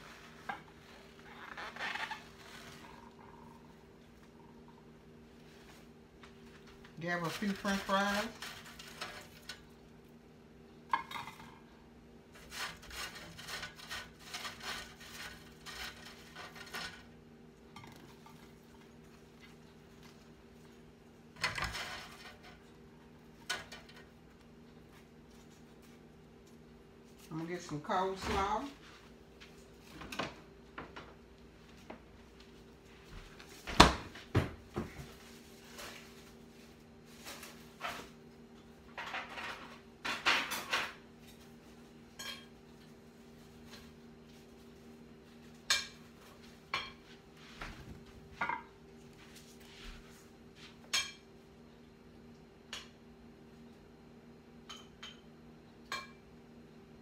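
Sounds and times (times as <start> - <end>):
dishes and cutlery clinking: 42.1 - 42.6, 48.4 - 48.8.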